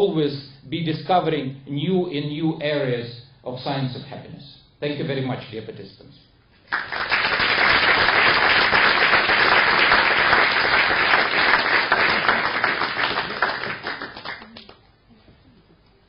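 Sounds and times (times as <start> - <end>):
audience applauding: 6.7 - 14.8.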